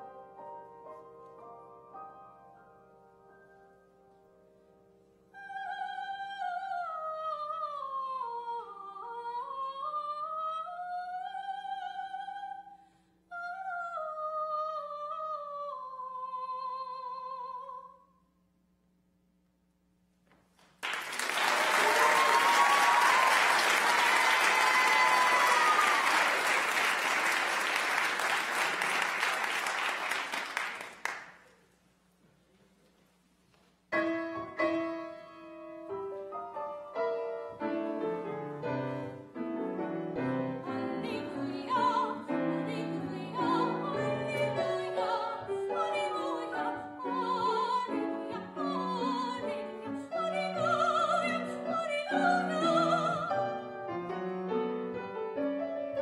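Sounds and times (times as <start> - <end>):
piano playing: 0.0 - 5.1, 33.9 - 56.0
soprano singing with vibrato: 5.4 - 18.0, 40.2 - 53.8
audience applauding: 20.6 - 31.5.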